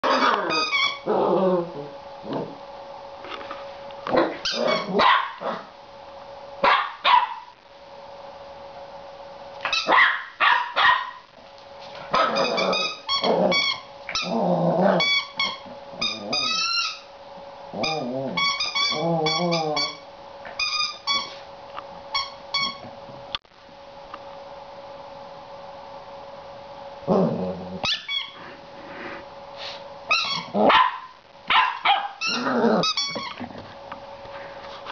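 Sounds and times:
puppy growling: 0.0 - 2.6, 4.1 - 5.7, 12.1 - 16.7, 17.7 - 20.0, 27.0 - 29.2, 32.2 - 33.6
puppy barking and yipping: 4.2 - 5.6, 6.6 - 7.5, 9.7 - 11.2, 30.1 - 32.5.

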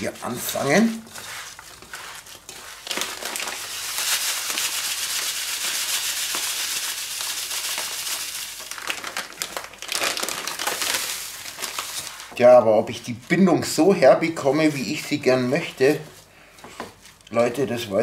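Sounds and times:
breadcrumbs shaken into bowl: 0.0 - 12.4
hand squishing food mix: 0.0 - 16.3
plastic bag crinkling: 0.0 - 16.3.

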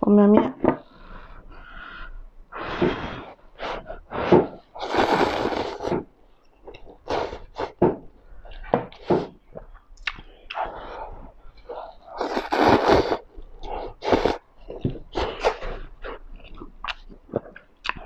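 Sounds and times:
person slurping noodles: 2.6 - 6.1, 7.0 - 8.0, 10.5 - 16.7.

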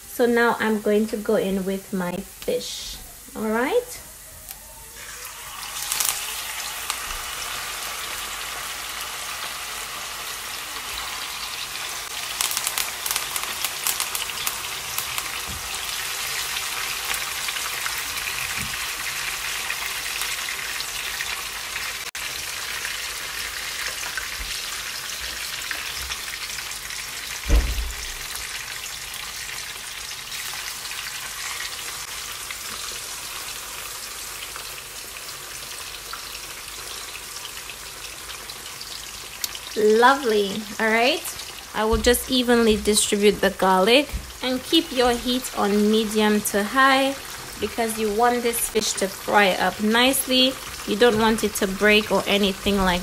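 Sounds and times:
fish sizzling in oil: 2.2 - 53.0
dull thump: 27.5 - 28.1.

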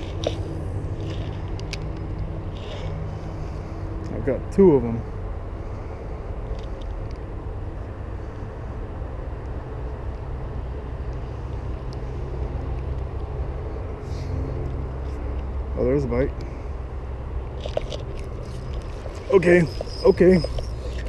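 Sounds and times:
low engine rumble: 0.0 - 21.0.

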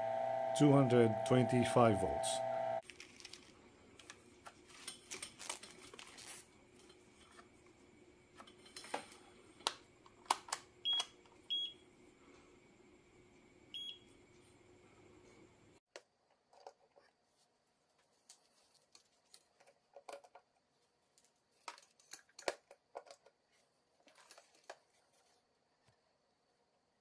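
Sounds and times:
clicks and knocks of handling: 18.2 - 20.6, 21.2 - 23.4.

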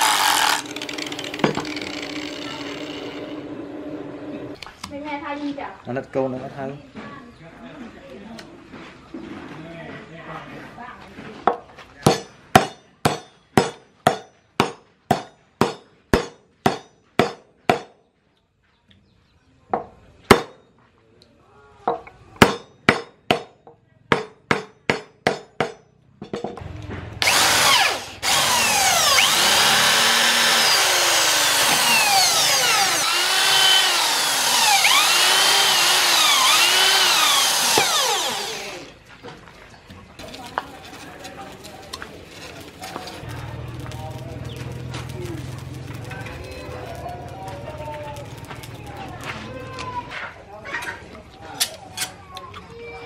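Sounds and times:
electric drill boring into wood: 0.0 - 3.4, 27.2 - 39.0
hammer striking metal pipe: 12.0 - 18.0, 22.4 - 26.6.

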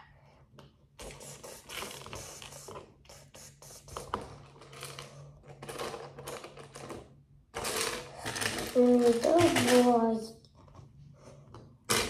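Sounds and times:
plastic bricks clicking and scraping: 4.0 - 12.0.

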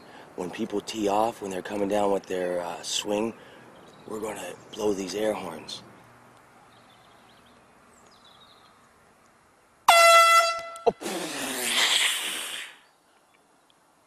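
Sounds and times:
air horn blast: 9.9 - 11.0.

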